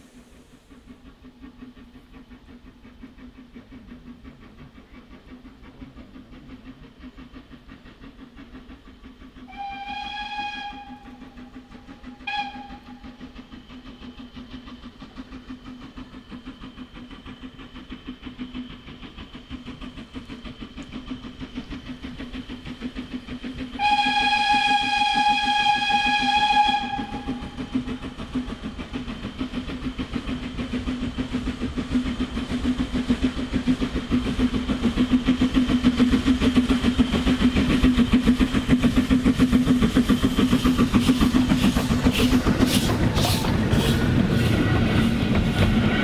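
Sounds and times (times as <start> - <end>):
steam locomotive running: 0.0 - 46.0
steam whistle: 9.4 - 13.3, 23.8 - 27.8, 42.1 - 46.0.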